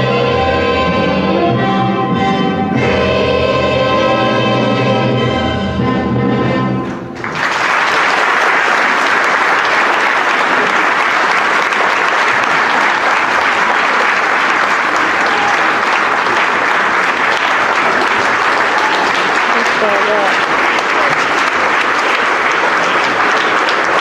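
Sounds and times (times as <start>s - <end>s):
choir singing with accompaniment: 0.0s - 7.0s
audience applause: 7.2s - 24.0s.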